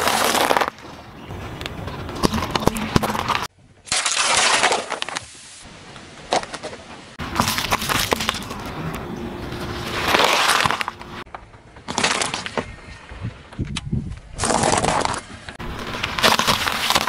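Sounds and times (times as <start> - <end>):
tyre crushing plastic cups: 0.0 - 5.2, 14.4 - 17.0.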